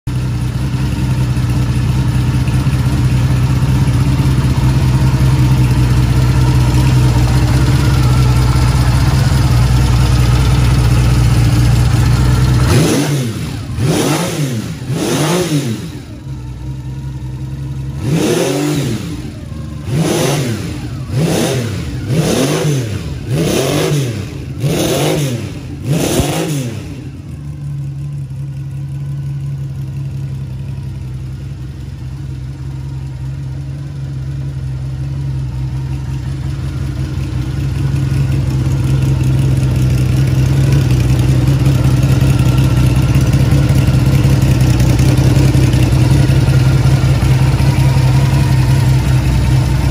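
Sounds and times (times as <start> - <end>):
engine idling: 0.1 - 49.9
motorcycle engine revving: 0.1 - 49.9.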